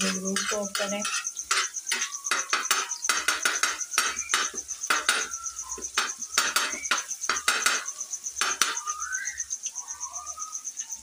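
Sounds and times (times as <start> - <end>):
metal turner scraping griddle: 0.0 - 5.4, 6.0 - 8.8.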